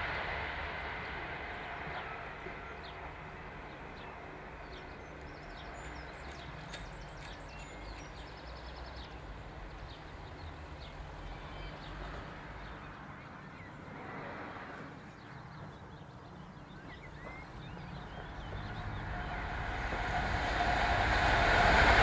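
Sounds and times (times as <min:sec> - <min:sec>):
passing train: 0:00.0 - 0:22.0
road traffic rumble: 0:00.0 - 0:22.0
small birds chirping: 0:03.7 - 0:13.9, 0:14.9 - 0:19.5.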